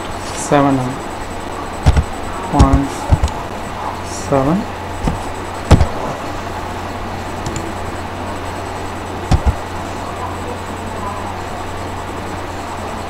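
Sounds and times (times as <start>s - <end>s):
low hum: 0.0s - 13.0s
sharp knocks: 1.8s - 3.4s, 5.0s - 6.0s, 9.3s - 9.6s.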